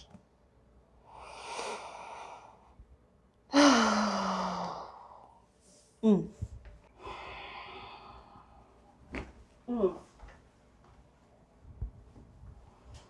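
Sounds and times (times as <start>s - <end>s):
woman exhaling heavily: 3.5s - 5.2s
woman sighing: 3.5s - 5.2s, 6.0s - 6.3s.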